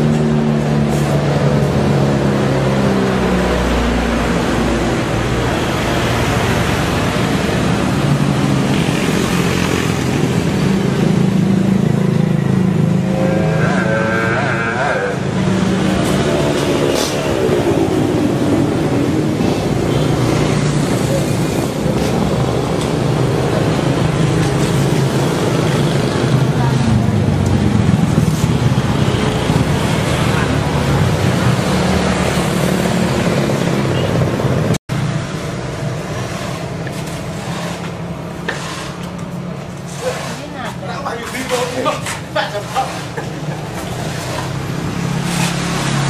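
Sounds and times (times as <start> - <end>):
motor vehicle engine running: 0.0 - 46.0.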